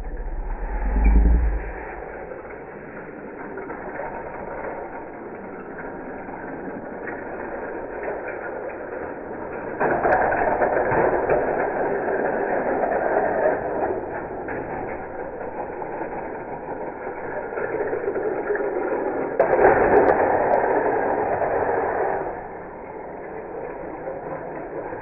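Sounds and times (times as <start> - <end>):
toy cars rolling on wooden track: 2.4 - 25.0.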